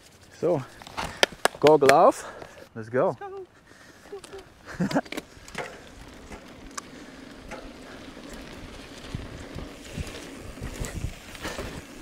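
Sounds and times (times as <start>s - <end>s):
bike rattling: 0.0s - 2.6s, 3.7s - 12.0s
tyres crunching over gravel: 3.9s - 12.0s.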